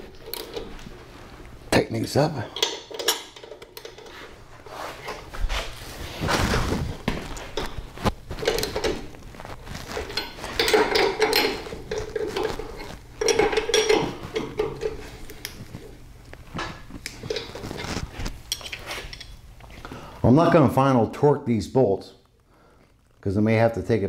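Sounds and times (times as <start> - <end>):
metal hand tools clinking: 10.0 - 15.1.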